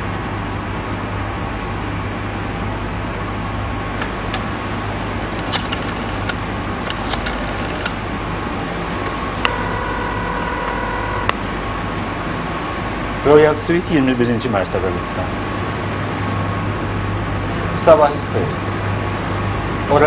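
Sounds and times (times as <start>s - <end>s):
steady low hum: 0.0s - 20.0s
rotary dial clicks: 5.2s - 8.1s
telephone line tone: 9.2s - 11.7s.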